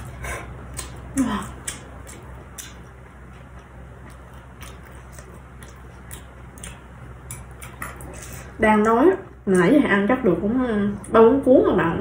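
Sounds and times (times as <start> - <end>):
chewing crispy food: 0.0 - 9.0
steady low hum: 0.0 - 12.0.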